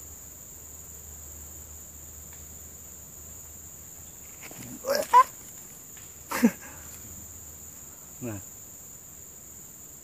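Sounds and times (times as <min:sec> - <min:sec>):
high insect drone: 0:00.0 - 0:10.0
short animal calls: 0:04.6 - 0:05.4.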